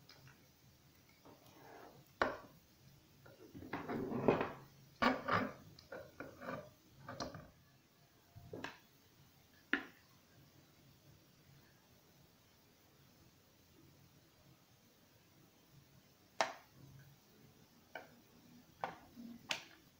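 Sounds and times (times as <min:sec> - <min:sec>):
rubbing and scraping: 0:03.5 - 0:07.3.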